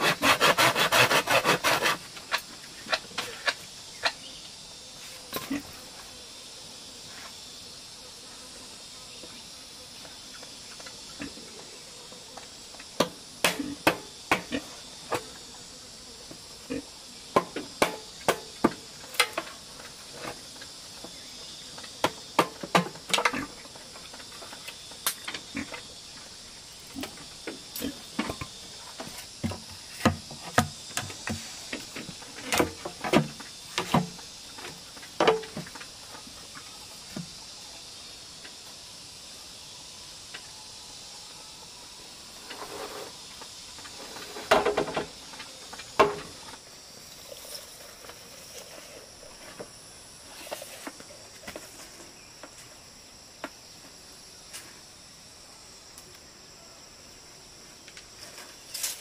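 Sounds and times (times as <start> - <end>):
machete chopping bamboo: 0.0 - 2.0
high drone of insects: 0.0 - 59.0.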